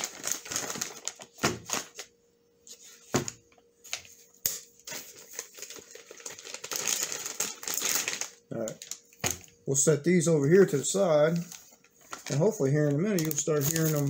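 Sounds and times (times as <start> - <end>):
plastic pouches crinkling: 0.0 - 2.1, 4.8 - 9.6, 10.4 - 14.0.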